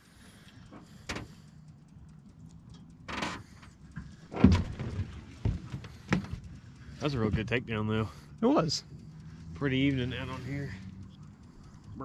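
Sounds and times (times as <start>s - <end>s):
fishing reel whirring: 6.4s - 12.0s.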